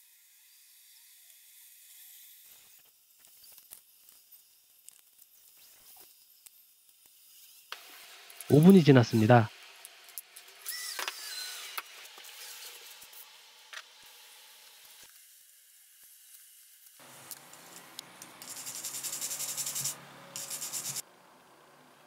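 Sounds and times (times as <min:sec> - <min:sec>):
tissue rubbing on steel blade: 0:18.4 - 0:21.0.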